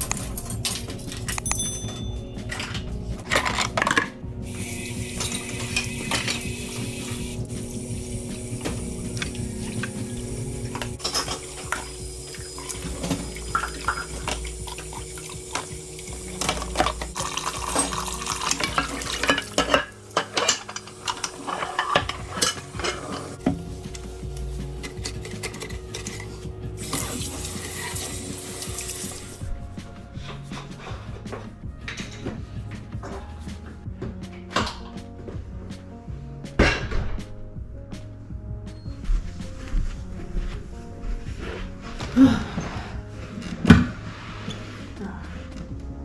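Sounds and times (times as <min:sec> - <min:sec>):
cutlery and dishes clattering: 0:00.0 - 0:04.2, 0:11.0 - 0:11.9, 0:13.0 - 0:14.8, 0:16.3 - 0:23.4, 0:24.8 - 0:27.1, 0:31.8 - 0:32.4, 0:34.4 - 0:35.0.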